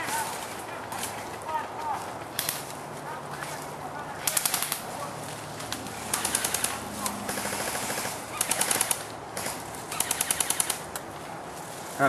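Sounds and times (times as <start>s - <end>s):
airsoft gun bursts: 4.2s - 4.8s, 6.1s - 10.9s.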